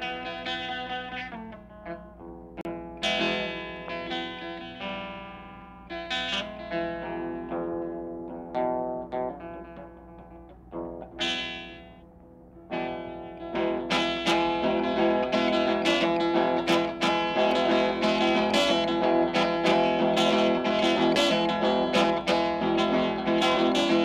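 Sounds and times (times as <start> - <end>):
electric blues guitar: 0.0 - 24.0.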